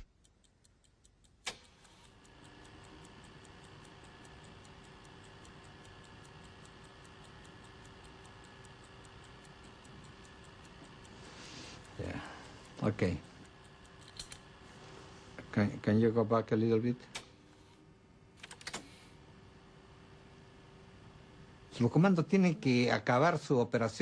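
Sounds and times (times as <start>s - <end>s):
sharp click: 0.0s - 11.0s, 13.6s - 14.5s
clock ticking: 0.0s - 14.0s
low steady hum: 0.0s - 24.0s.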